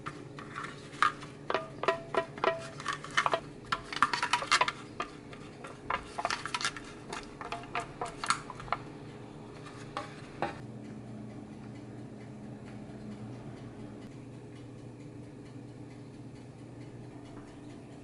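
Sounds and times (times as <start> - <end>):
brush taps: 0.0 - 10.6
foil cups crinkling and clicking: 0.0 - 10.6.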